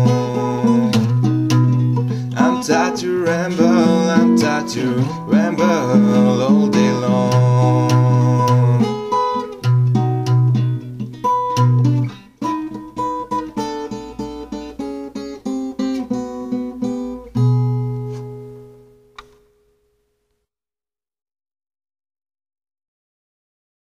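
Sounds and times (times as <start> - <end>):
blues guitar playing: 0.0 - 19.2.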